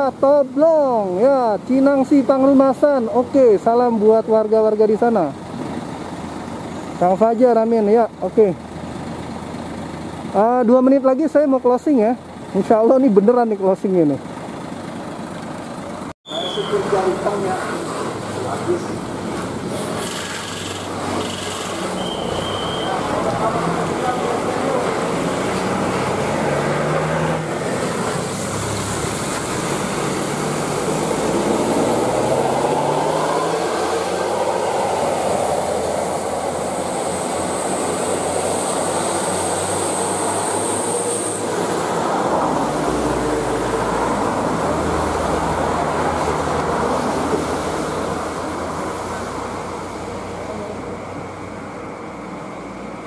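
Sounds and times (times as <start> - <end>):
passing trucks: 0.0 - 53.0
coach engine pulling away: 13.9 - 52.3.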